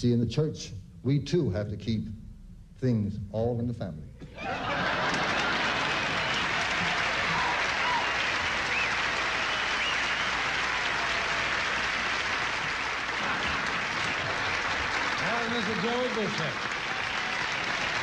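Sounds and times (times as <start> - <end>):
audience applauding: 4.3 - 18.0.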